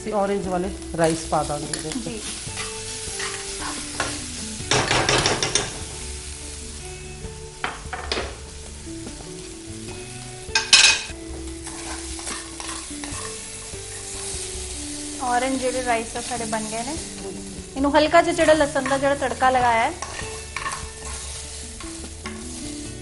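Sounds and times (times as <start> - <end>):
rice sizzling in oil: 0.0 - 23.0
utensil scraping pan: 1.7 - 4.3, 10.6 - 14.4, 19.9 - 22.5
metal clattering on pan: 2.6 - 5.9, 10.5 - 13.4, 20.0 - 22.4.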